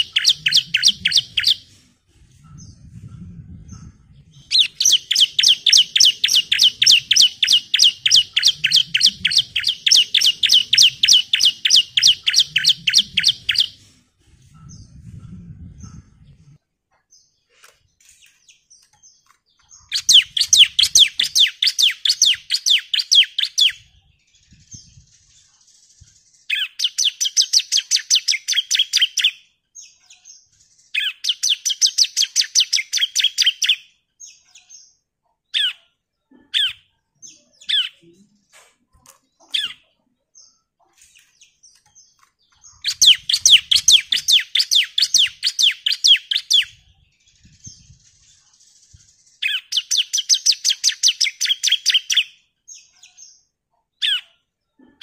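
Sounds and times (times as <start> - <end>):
bird fast trills: 0.0 - 1.7, 4.5 - 13.8, 19.8 - 23.8, 42.7 - 52.2.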